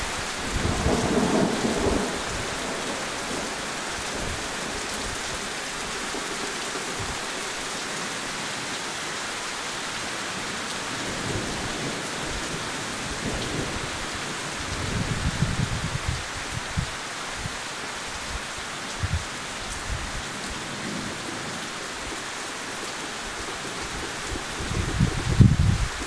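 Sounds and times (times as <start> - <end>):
heavy rain: 0.0 - 26.0
thunder rumble: 0.5 - 3.4, 11.1 - 16.9, 23.9 - 26.0.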